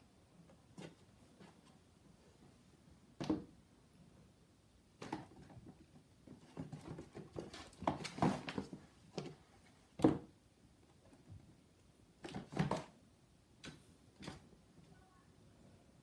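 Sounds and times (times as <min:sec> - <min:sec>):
kittens scrabbling in cardboard box: 0:05.0 - 0:10.3, 0:12.2 - 0:13.0
cardboard box knocks and scrapes: 0:06.4 - 0:08.8.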